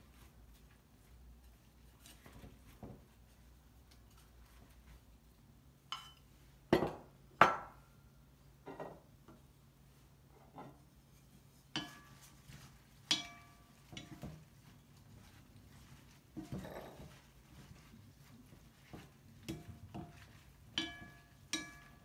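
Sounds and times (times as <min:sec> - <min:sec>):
utensils clinking on ceramic plates: 0:05.9 - 0:06.2, 0:11.8 - 0:12.3, 0:13.0 - 0:14.4, 0:19.5 - 0:22.0
wooden utensils knocking glass bowl: 0:13.1 - 0:14.4, 0:19.5 - 0:22.0.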